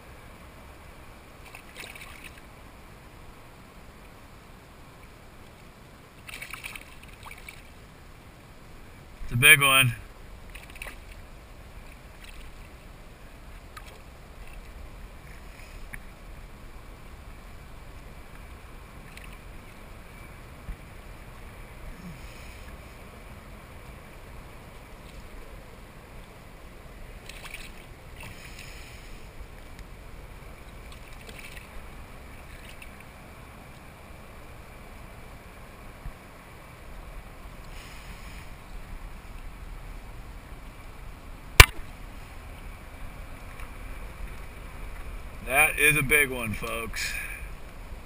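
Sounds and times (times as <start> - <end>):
water lapping around kayak: 0.0 - 48.0
wind: 0.0 - 48.0
faint splash: 1.4 - 2.5, 6.2 - 7.8, 10.4 - 16.1, 18.3 - 19.9, 27.1 - 29.8, 30.5 - 33.2
fish splashing at surface: 1.5 - 2.4, 6.2 - 7.7
sharp knock: 41.6 - 41.8.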